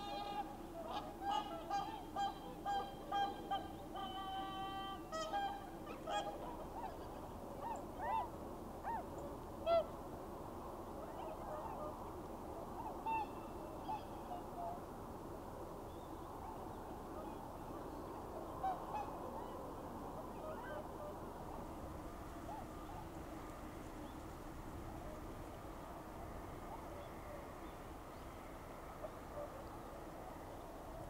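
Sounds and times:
swans honking: 0.0s - 8.3s, 11.0s - 14.8s.

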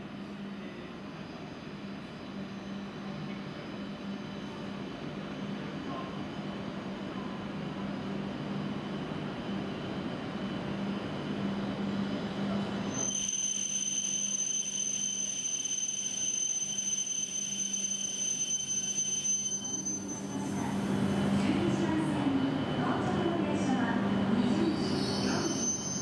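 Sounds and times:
high-pitched brake squeal: 12.9s - 20.9s, 24.6s - 26.0s.

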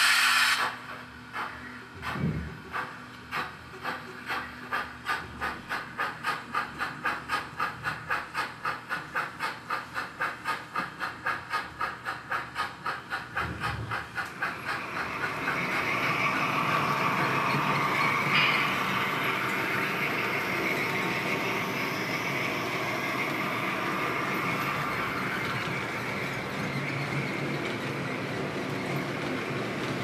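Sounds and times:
model steam locomotive chuffing: 0.0s - 30.0s
train running: 0.0s - 30.0s.

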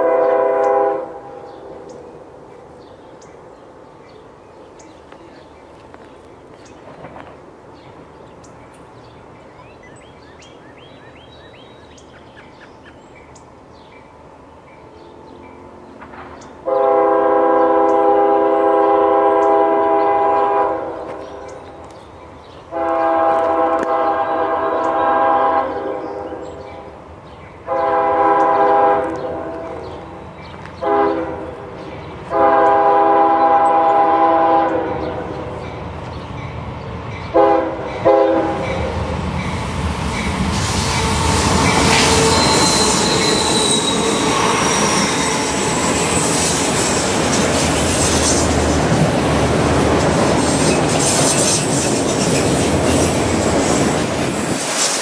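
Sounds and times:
locomotive air horn blasts: 0.0s - 1.4s, 16.6s - 21.2s, 22.7s - 26.4s, 27.7s - 29.8s, 30.8s - 31.6s, 32.3s - 35.1s, 37.3s - 38.8s
low rumble of train: 0.0s - 55.0s.

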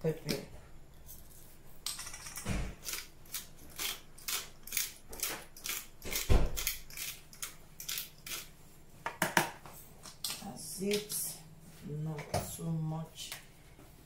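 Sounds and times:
pepper grinder grinding: 1.1s - 8.5s.

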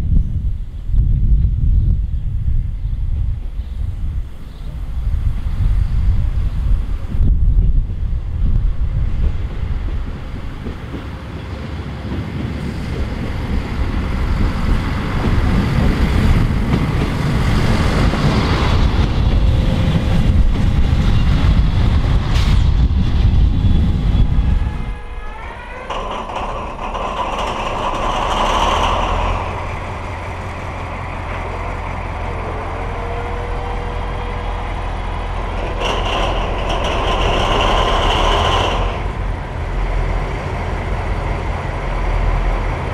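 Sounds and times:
diesel railcar rumble: 0.0s - 42.9s
wind on microphone: 0.0s - 42.9s
diesel locomotive idling: 22.8s - 42.9s.

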